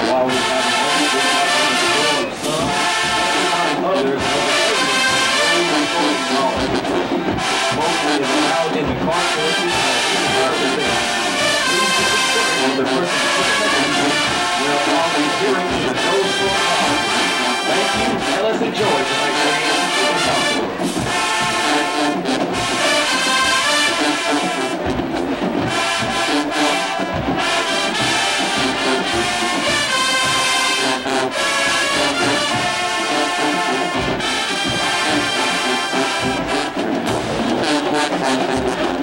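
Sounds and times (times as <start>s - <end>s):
marching band playing: 0.0s - 39.0s
trombones and trumpets: 0.0s - 39.0s.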